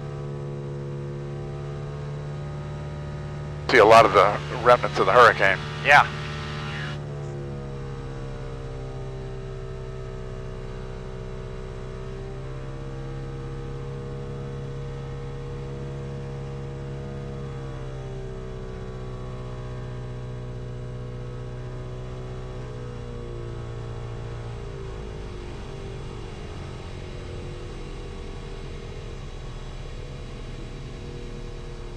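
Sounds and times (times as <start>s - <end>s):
propeller aircraft engine drone: 3.4s - 7.0s.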